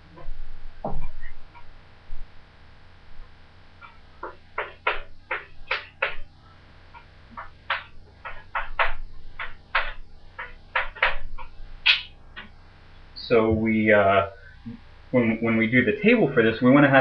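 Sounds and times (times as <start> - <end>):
chalk tapping on a blackboard: 3.8 - 6.3, 7.3 - 12.5.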